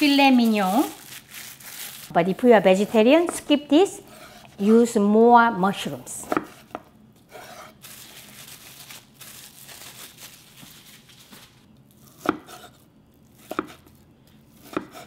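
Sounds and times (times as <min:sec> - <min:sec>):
knife slicing meat: 0:12.0 - 0:15.0.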